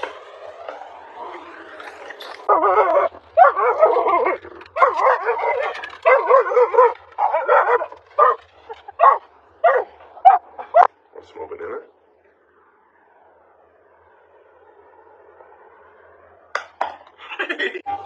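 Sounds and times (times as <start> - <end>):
dog barking: 2.5 - 11.0.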